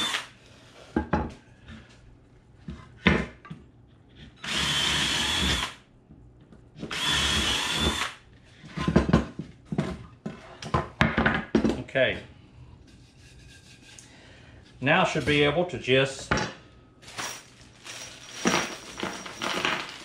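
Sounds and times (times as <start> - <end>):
cordless drill whining: 0.0 - 0.3, 4.4 - 5.8, 6.9 - 8.2.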